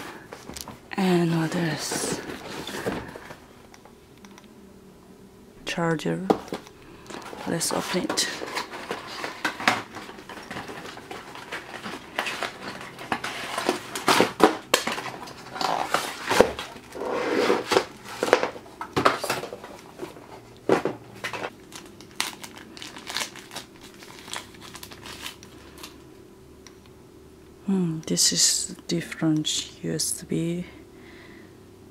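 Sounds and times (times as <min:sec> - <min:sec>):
plastic bags crinkling: 0:06.5 - 0:17.0, 0:21.3 - 0:26.0.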